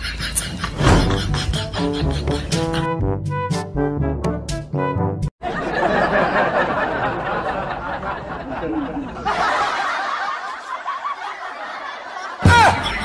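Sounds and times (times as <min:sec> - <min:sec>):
passengers chattering and laughing: 0:05.5 - 0:12.4.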